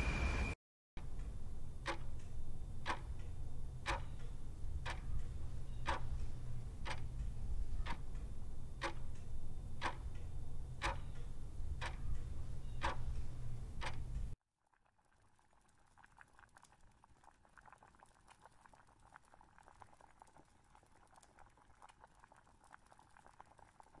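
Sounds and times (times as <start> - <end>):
low hum: 0.0 - 14.4
clock ticking: 1.0 - 14.4.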